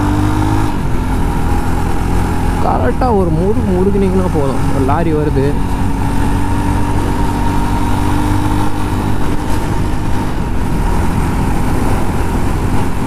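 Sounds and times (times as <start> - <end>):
motorcycle engine running: 0.0 - 13.0
wind and road noise: 0.0 - 13.0.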